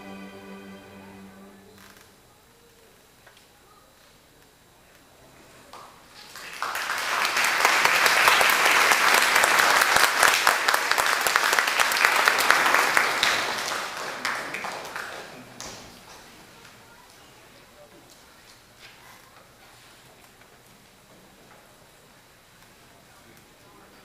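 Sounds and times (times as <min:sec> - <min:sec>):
audience applauding: 0:06.2 - 0:16.0.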